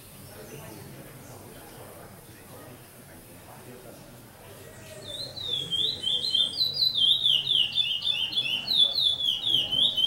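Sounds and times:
songbird singing whistled notes: 0:04.8 - 0:10.0.

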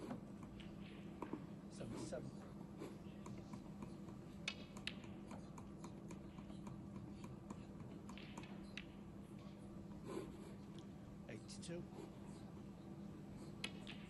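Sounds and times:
snooker balls clicking: 0:00.0 - 0:01.6, 0:03.2 - 0:09.6, 0:13.5 - 0:14.0.

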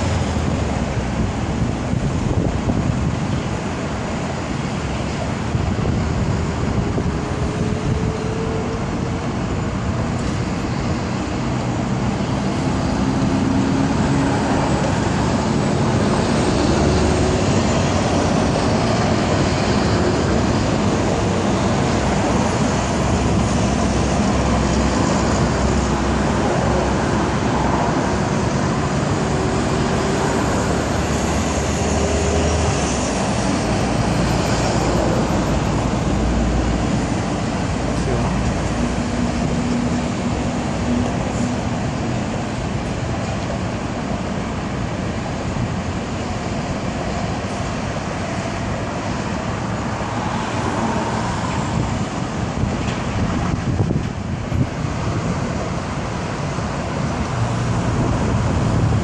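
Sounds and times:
road traffic noise: 0:00.0 - 0:59.0.

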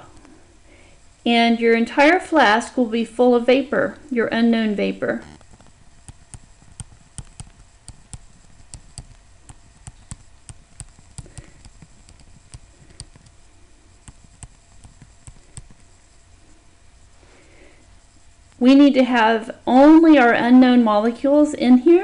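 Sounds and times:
pen tapping and clicking: 0:05.4 - 0:13.4, 0:14.0 - 0:15.9.

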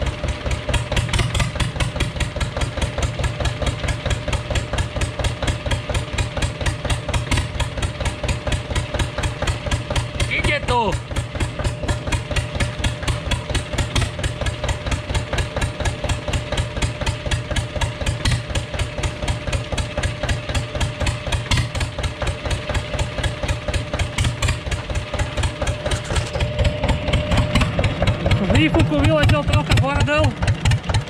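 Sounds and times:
diesel engine idling: 0:00.0 - 0:31.0
thin steady whine: 0:25.7 - 0:29.0.

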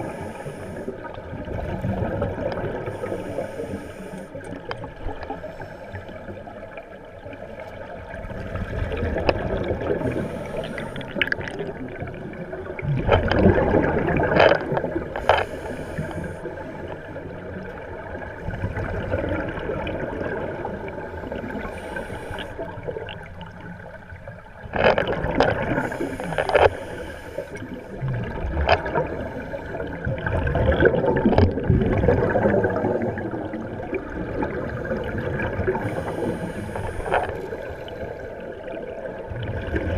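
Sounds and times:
underwater bubbles gurgling: 0:00.0 - 0:39.9.

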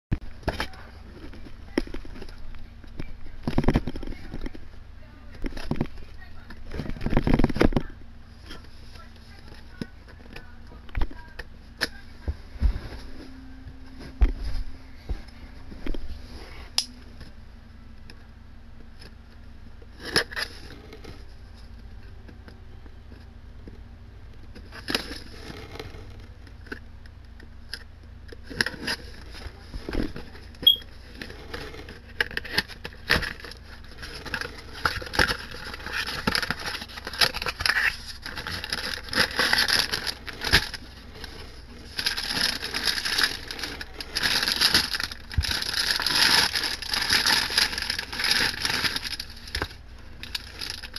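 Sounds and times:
plastic packaging crinkling: 0:28.4 - 0:50.9.

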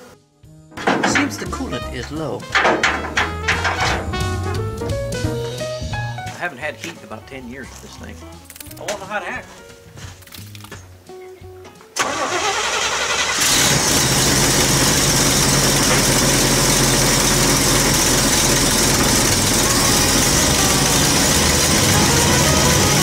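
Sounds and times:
pickup engine starting and idling: 0:01.0 - 0:05.3, 0:12.0 - 0:23.0.

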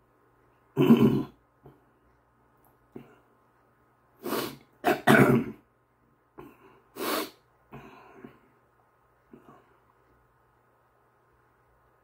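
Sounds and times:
man clearing throat and coughing: 0:00.8 - 0:01.4, 0:04.8 - 0:05.6.

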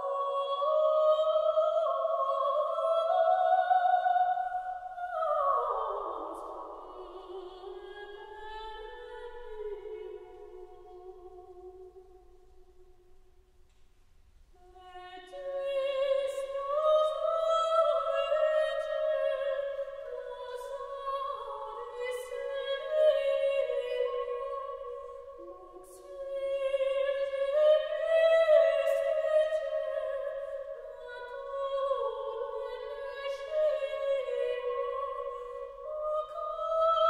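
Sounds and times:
operatic high voice singing: 0:14.7 - 0:24.8.

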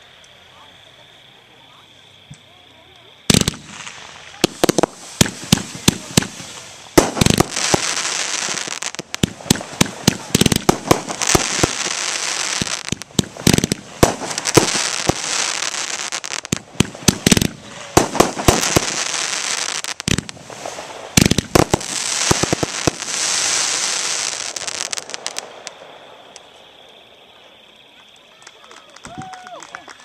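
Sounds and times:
crackle of bursting stars: 0:03.0 - 0:29.6
fireworks sharp bangs: 0:03.3 - 0:26.3.

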